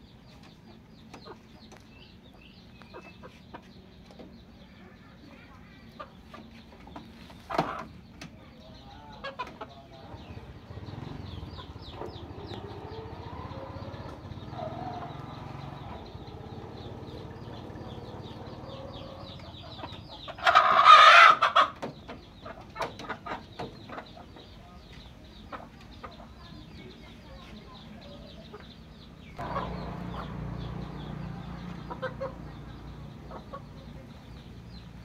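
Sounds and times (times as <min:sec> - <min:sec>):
chickens clucking softly: 0:00.0 - 0:35.0
chicken squawk: 0:18.7 - 0:21.8.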